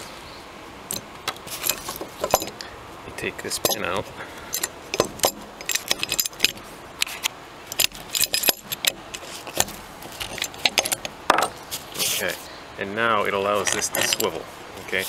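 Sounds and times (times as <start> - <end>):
metal parts clicking and clinking: 0.9 - 2.7, 3.5 - 3.9, 4.5 - 12.2, 13.6 - 14.4.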